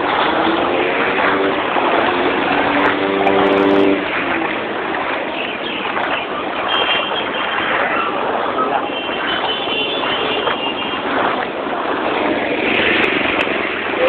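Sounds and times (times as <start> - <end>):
engine hum: 0.0 - 6.7
traffic through flood water: 0.0 - 14.0.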